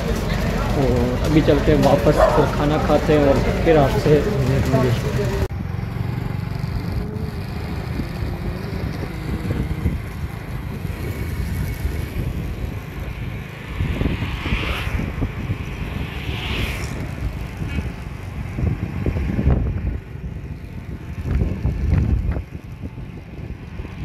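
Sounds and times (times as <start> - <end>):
road traffic: 0.0 - 24.0
vehicles passing close: 0.0 - 24.0
wind rumble on microphone: 6.1 - 24.0.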